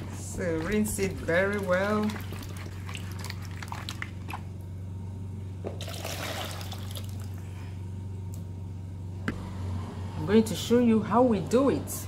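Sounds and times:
low hum: 0.0 - 12.0
water sloshing in plastic bowl: 0.2 - 4.4.

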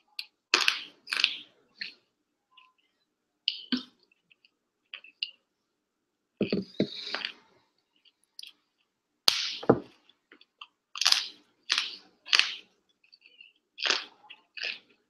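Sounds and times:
crunching bites and chewing: 10.0 - 15.0.

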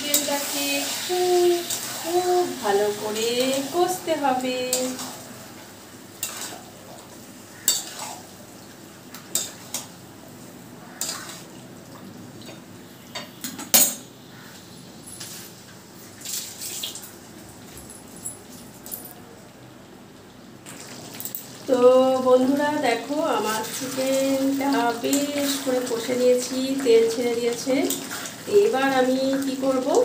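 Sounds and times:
chicken frying: 0.0 - 12.7, 15.4 - 17.5, 20.1 - 30.0
metal spatula scraping a pan: 6.2 - 6.6, 7.6 - 8.2, 10.9 - 11.5.

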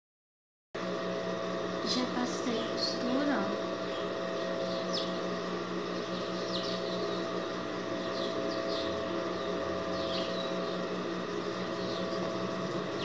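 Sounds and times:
electrical hum: 0.8 - 13.0
high falling bird chirps: 3.8 - 5.2, 5.8 - 10.9, 11.6 - 12.3.

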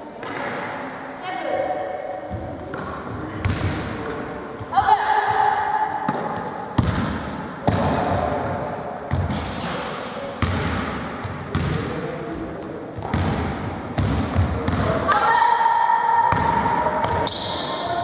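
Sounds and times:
rubber ball thudding in a hall: 2.3 - 4.2, 4.8 - 8.5, 13.0 - 15.2.

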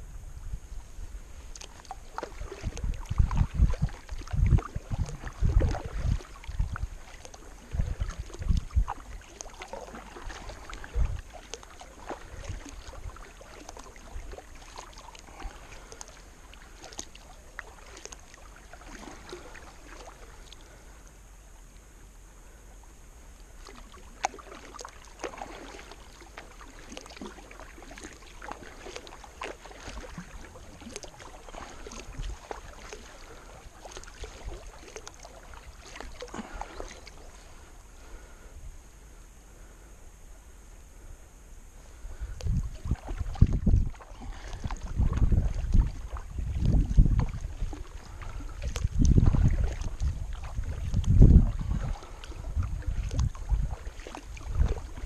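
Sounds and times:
kayak paddle splashing in water: 1.3 - 21.1, 23.4 - 38.4, 41.8 - 55.0.

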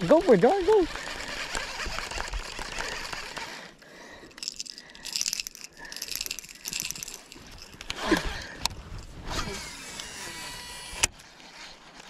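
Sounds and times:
fishing reel cranking: 0.0 - 11.6.

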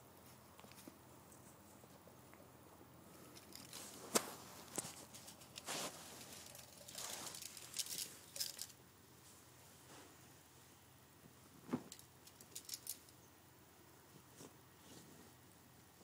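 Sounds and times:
ferrets scrambling and scuffling: 3.2 - 8.7.

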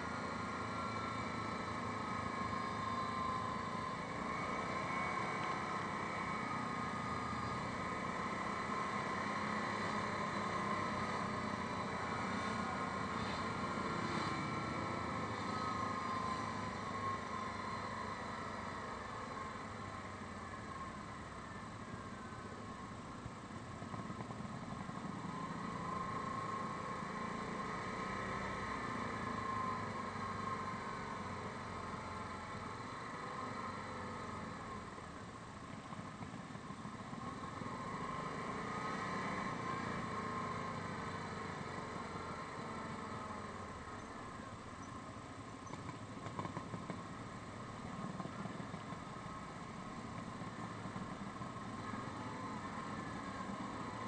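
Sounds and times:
road noise: 0.0 - 54.0
quad bike engine running: 45.5 - 54.0.

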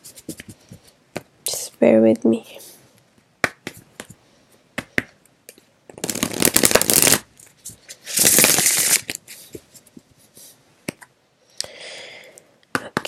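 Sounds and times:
cards riffling: 5.9 - 9.4.

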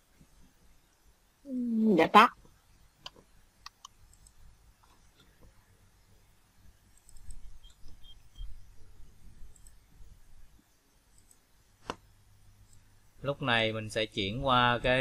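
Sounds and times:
computer mouse clicks: 3.0 - 5.5, 6.9 - 8.4, 9.5 - 9.8, 11.1 - 12.0, 12.6 - 12.9.

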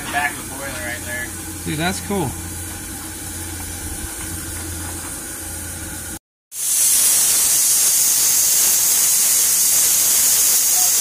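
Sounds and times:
steam locomotive hissing: 6.6 - 11.0.

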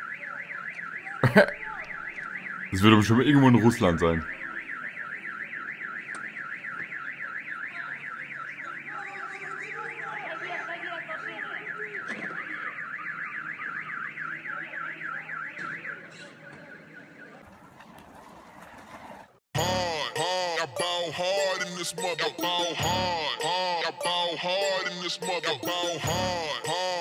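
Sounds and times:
car alarm warbling: 0.0 - 27.0.

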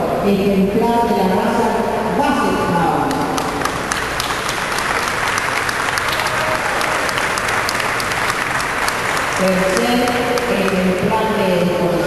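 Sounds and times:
audience applauding: 3.1 - 11.0.

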